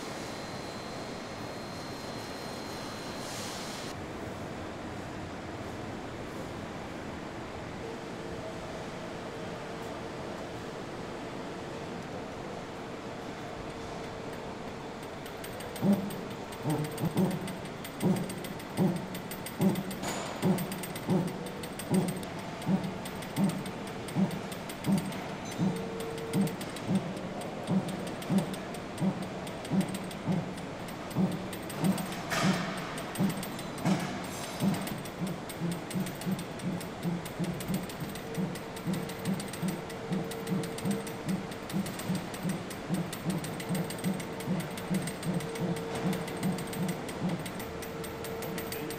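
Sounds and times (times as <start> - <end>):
ratchet clicking: 15.0 - 48.9.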